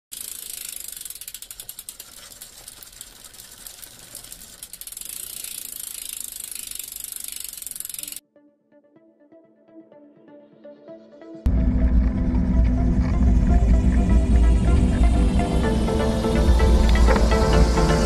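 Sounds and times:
bicycle freewheel hub clicking: 0.0 - 8.2.

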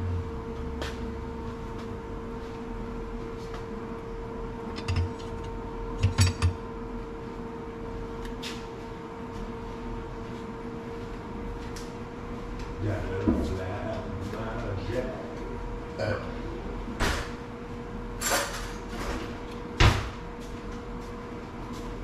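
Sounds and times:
steady hum: 0.0 - 22.0
pots and dishes clinking: 4.8 - 5.4, 6.0 - 6.6.

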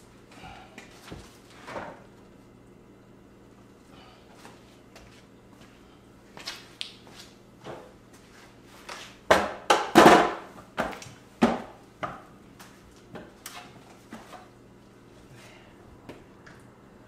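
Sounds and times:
wooden boards knocking on workbench: 9.3 - 12.2.

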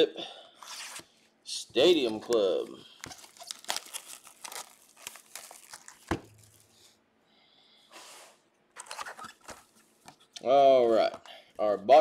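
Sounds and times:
plastic shrink-wrap crinkling: 2.0 - 6.9.

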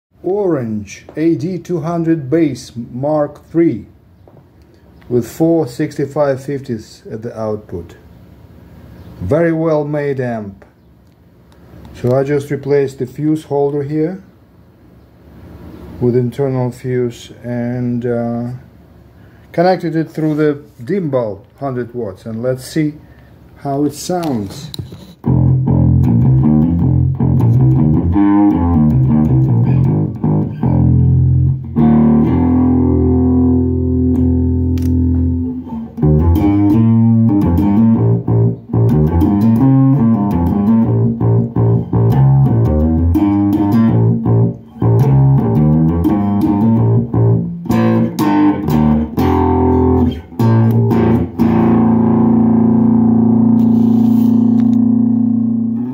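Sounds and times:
electric bass guitar playing: 25.2 - 55.9.

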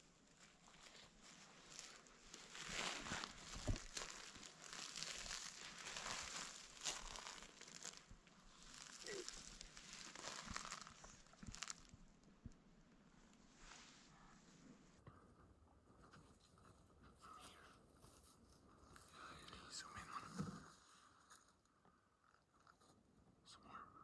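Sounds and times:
clothing rustling and crinkling: 0.0 - 12.6.

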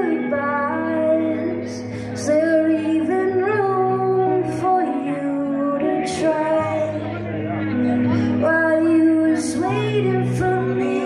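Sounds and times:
electric guitar: 0.0 - 11.0.

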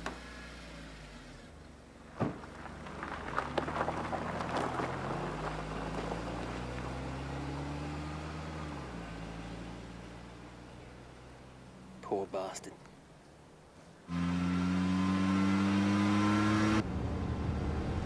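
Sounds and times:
tyres crackling over gravel: 2.0 - 7.2
thump: 2.2 - 2.5.

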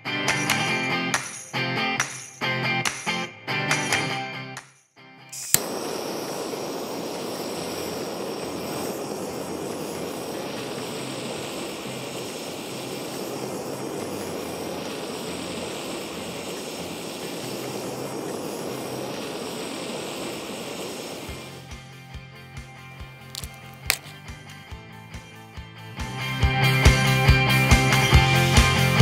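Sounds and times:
gas blowtorch flame burning: 5.3 - 22.0, 23.2 - 24.3.

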